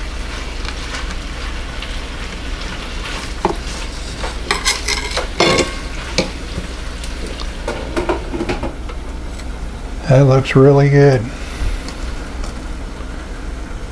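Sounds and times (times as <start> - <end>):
bacon sizzling in a pan: 0.0 - 10.1.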